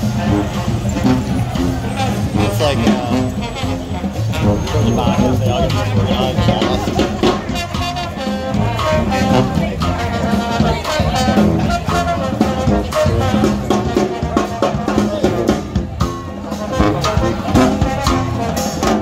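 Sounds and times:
upbeat brass band music: 0:00.0 - 0:19.0.

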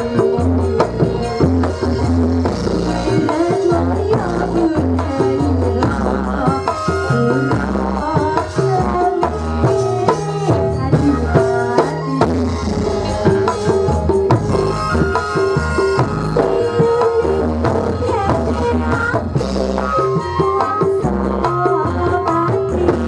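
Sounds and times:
steady drumming: 0:00.0 - 0:23.0.

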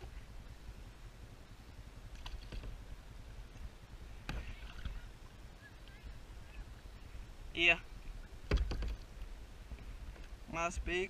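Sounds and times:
kayak paddling low rumble: 0:00.0 - 0:11.0
sharp knocks on kayak: 0:08.4 - 0:09.0.

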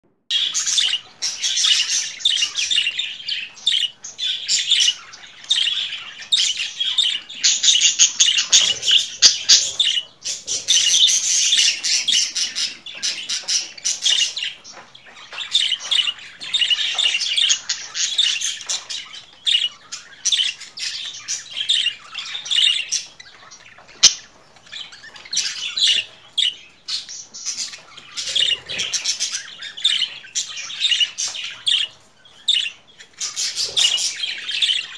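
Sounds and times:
budgerigars chattering: 0:00.3 - 0:34.9.

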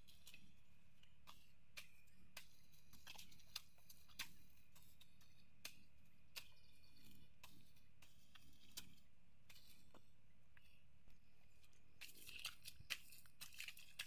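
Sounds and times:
blade chopping grass in mud: 0:12.0 - 0:14.0.

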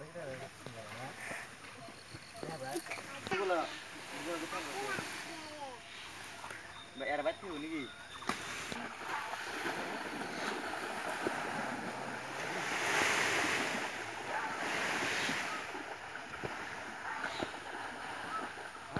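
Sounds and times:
water sloshing and splashing: 0:07.5 - 0:18.9.

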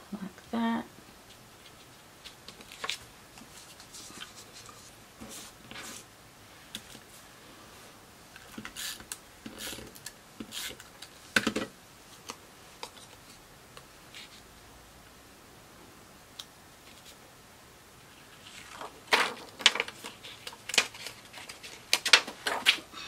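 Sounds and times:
paper rustling: 0:01.6 - 0:06.1, 0:18.2 - 0:22.9.

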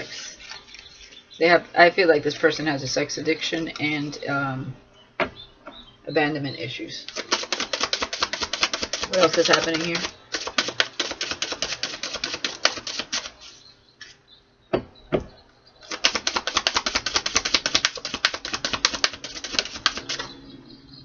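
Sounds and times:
cards being shuffled: 0:07.1 - 0:13.6, 0:15.8 - 0:20.3.

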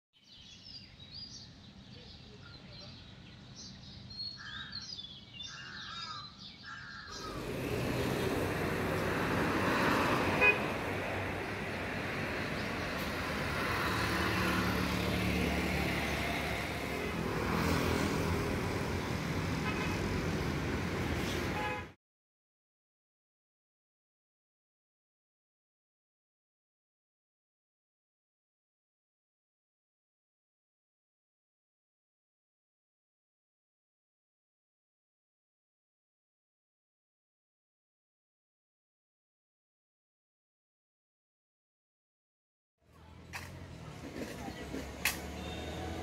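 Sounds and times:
road traffic passing: 0:06.8 - 0:22.0, 0:42.8 - 0:46.0
vehicle horn toot: 0:10.2 - 0:10.8, 0:19.6 - 0:20.0, 0:21.5 - 0:22.0, 0:45.4 - 0:46.0.

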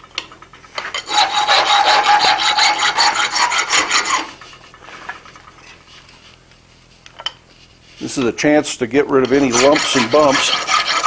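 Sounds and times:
file rasping on metal: 0:01.0 - 0:04.4, 0:09.2 - 0:11.0.

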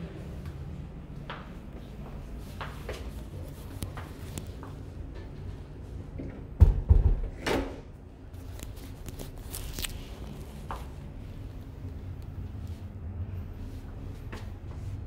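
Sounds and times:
rustling scrape: 0:08.4 - 0:11.8.

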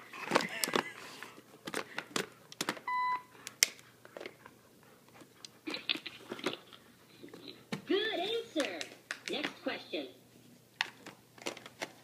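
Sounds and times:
dog biting plastic packaging: 0:00.2 - 0:00.9
toy electronic beep: 0:02.9 - 0:03.2.

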